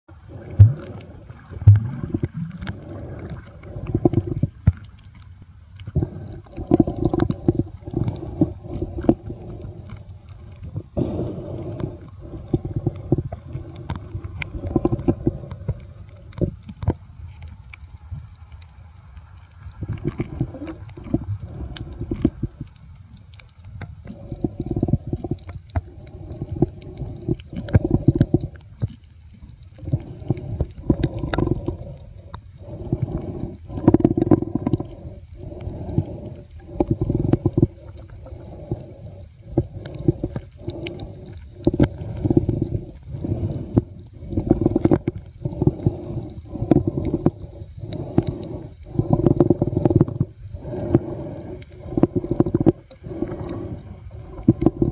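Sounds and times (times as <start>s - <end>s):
muffled underwater gurgling rumble: 0.1s - 54.9s.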